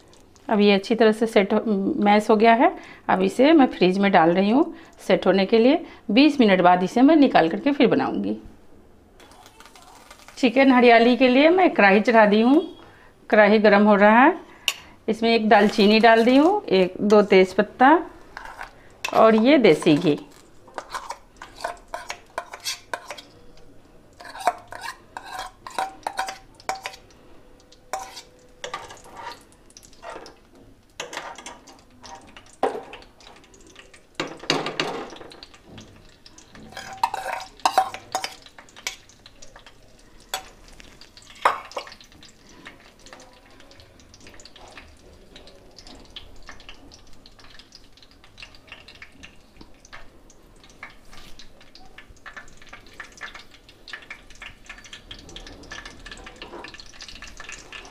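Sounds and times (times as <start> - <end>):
faint sizzle in a pan: 0.0 - 57.9
steel spoon scraping a bowl: 18.4 - 20.1, 20.8 - 23.3, 24.2 - 27.0, 27.9 - 29.4, 36.7 - 38.4.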